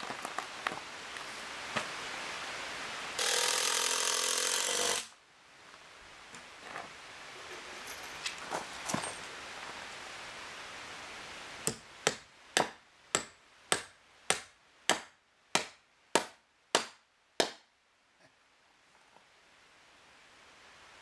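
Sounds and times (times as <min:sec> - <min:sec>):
hammer driving nail into wood: 0:11.7 - 0:17.6.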